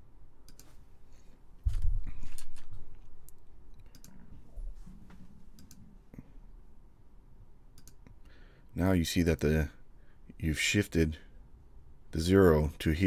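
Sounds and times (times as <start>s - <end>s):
mouse and keyboard clicks: 1.7s - 4.3s, 7.8s - 8.1s.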